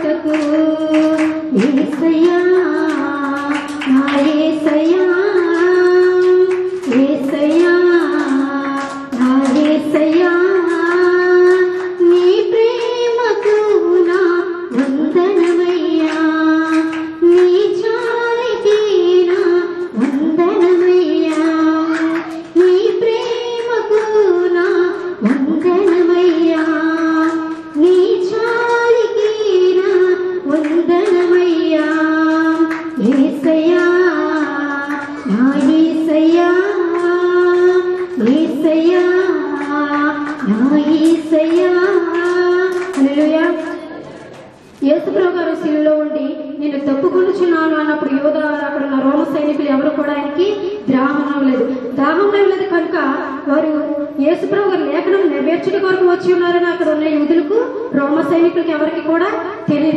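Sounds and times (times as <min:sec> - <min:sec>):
woman singing a hymn: 0:00.0 - 0:43.8.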